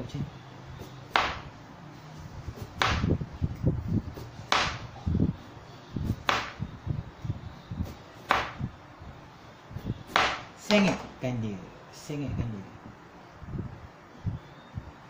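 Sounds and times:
knife chopping on cutting board: 0:00.8 - 0:01.5, 0:02.6 - 0:03.1, 0:04.2 - 0:04.8, 0:06.2 - 0:06.6, 0:07.9 - 0:08.6, 0:10.1 - 0:11.1.

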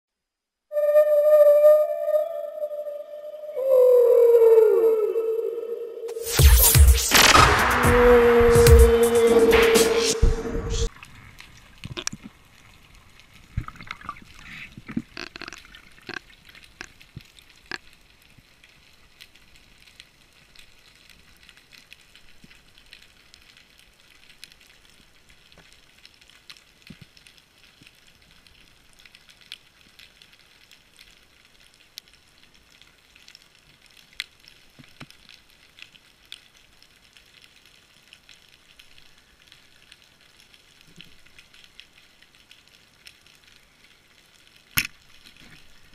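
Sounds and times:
sharp underwater clicks: 0:11.0 - 0:12.4, 0:13.5 - 0:18.0, 0:44.7 - 0:45.8
underwater crackling hiss: 0:13.5 - 0:17.9.

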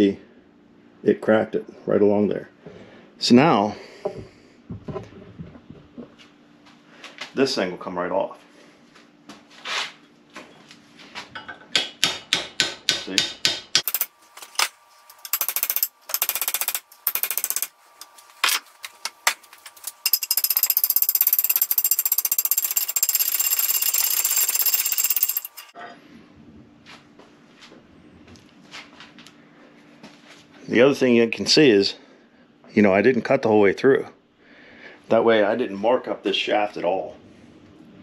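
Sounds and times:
rapid-hammering power tool: 0:13.8 - 0:14.2, 0:15.2 - 0:17.8, 0:19.8 - 0:25.8.

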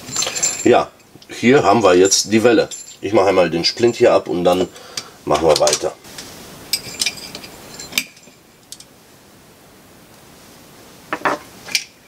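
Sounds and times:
metal parts clicking and knocking: 0:06.7 - 0:08.9.

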